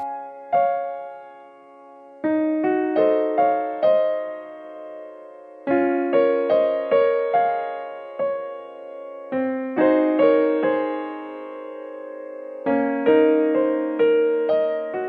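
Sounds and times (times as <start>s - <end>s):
slow gentle piano piece: 0.0s - 15.0s.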